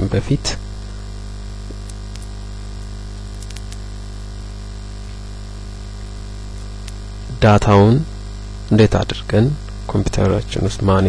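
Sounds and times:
electrical mains hum: 0.0s - 11.0s
faint clicks: 1.6s - 2.3s, 3.2s - 3.8s, 6.8s - 7.0s.

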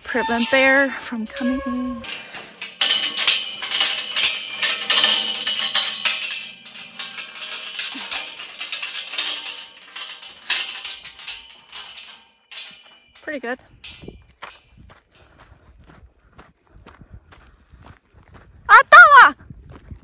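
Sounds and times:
chain rattling against metal gate: 0.0s - 15.4s.

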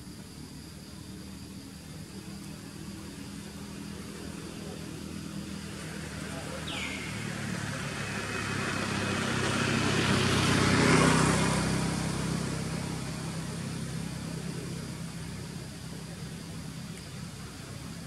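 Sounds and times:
low engine hum: 0.0s - 18.0s
motor vehicle passing: 4.1s - 16.2s.

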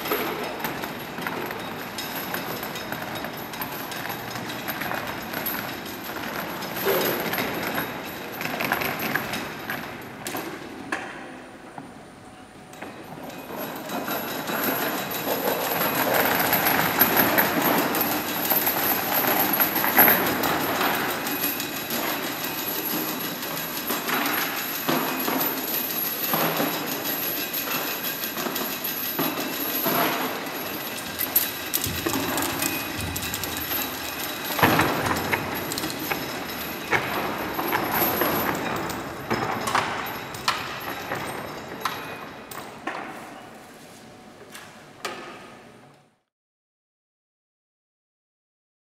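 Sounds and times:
heavy steel chains rattling: 0.0s - 10.6s, 12.7s - 43.2s
sharp knocks of chain and limbs: 0.0s - 11.1s, 12.8s - 43.4s.

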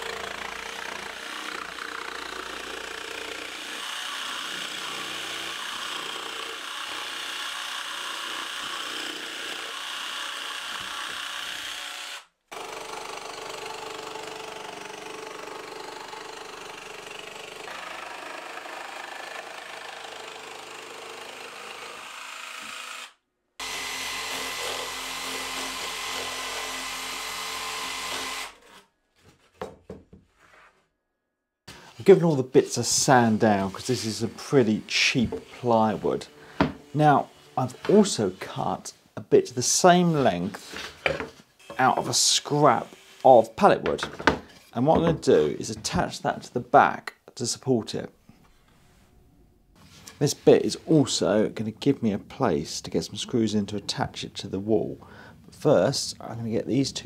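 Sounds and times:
jigsaw cutting plywood: 0.0s - 28.8s, 33.2s - 38.9s.

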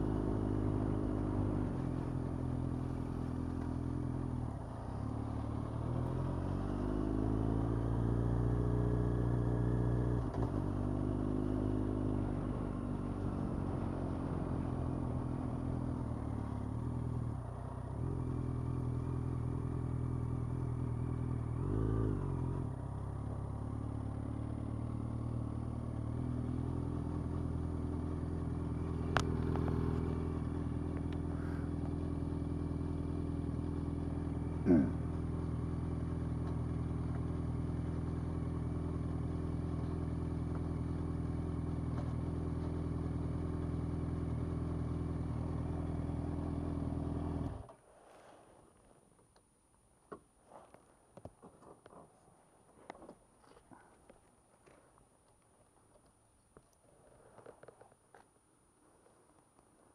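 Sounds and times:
motorcycle engine idling: 0.0s - 6.5s, 7.2s - 47.7s.

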